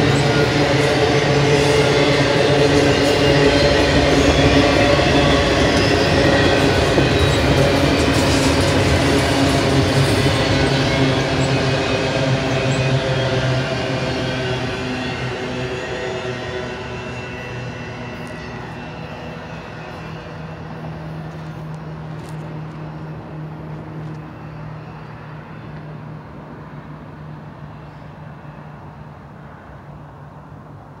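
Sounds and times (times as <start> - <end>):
freight train wheels rumbling: 0.0 - 31.0.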